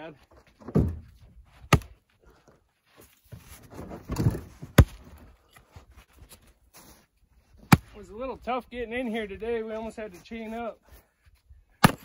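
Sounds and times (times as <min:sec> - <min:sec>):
maul striking firewood: 0:00.7 - 0:02.0, 0:04.6 - 0:05.2, 0:07.6 - 0:08.0, 0:11.8 - 0:12.0.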